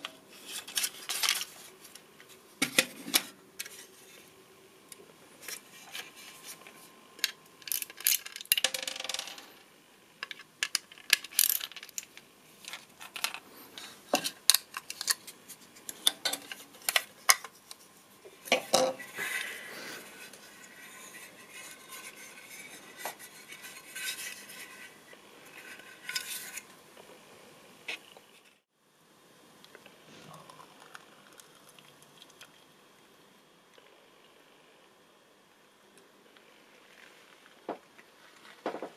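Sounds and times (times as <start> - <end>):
plastic parts clicking and snapping: 10.2 - 13.4
creaking scrape: 19.0 - 26.7.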